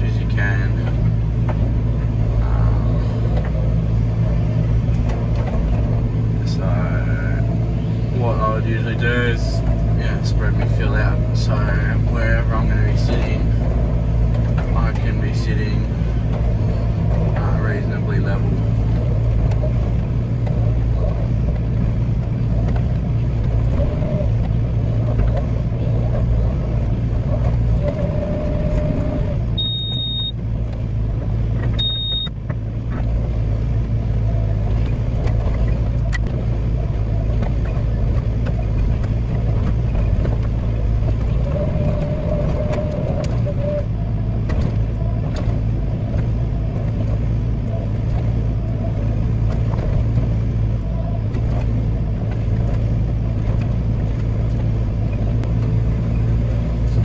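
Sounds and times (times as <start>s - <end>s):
excavator diesel engine running: 0.0s - 57.0s
short high-pitched beeps: 29.6s - 30.4s, 31.8s - 32.3s.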